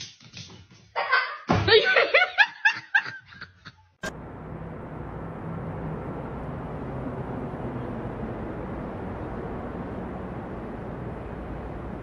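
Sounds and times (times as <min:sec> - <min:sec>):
car engine and road noise: 0:04.0 - 0:12.0.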